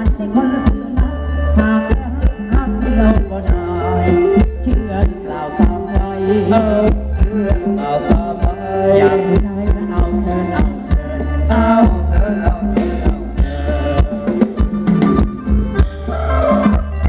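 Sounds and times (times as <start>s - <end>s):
live band playing instrumental: 0.0s - 17.0s
steady drum beat: 0.0s - 17.0s.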